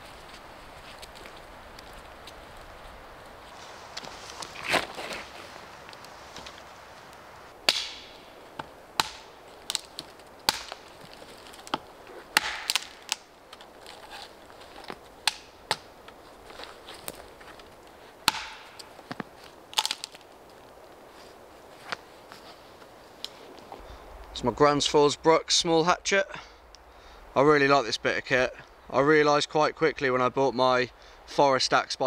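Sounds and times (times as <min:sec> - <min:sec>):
dry branches snapping: 0:00.0 - 0:24.4.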